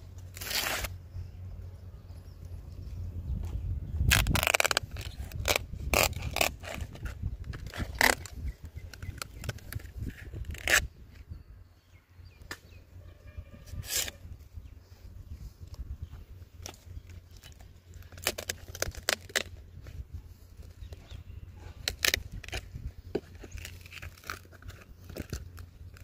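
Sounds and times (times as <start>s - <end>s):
knife scraping palm stalks: 0.1s - 1.0s, 4.0s - 11.0s, 13.6s - 14.3s, 16.6s - 26.0s.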